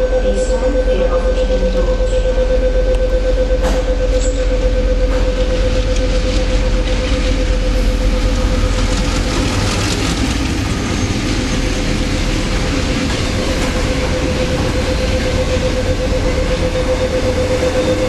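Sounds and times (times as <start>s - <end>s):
train rumbling past: 0.0s - 18.0s
train clatter: 3.5s - 18.0s.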